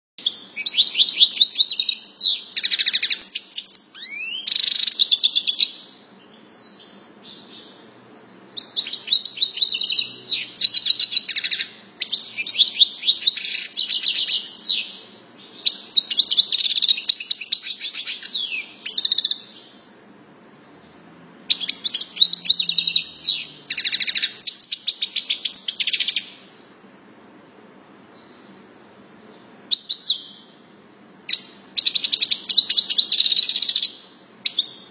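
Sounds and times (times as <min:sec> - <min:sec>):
goldfinch twittering song: 0:00.2 - 0:20.8, 0:21.5 - 0:27.4.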